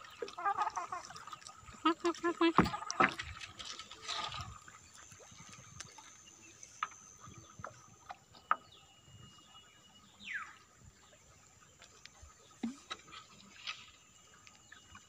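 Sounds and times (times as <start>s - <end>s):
bird chirps: 8.4s - 10.7s.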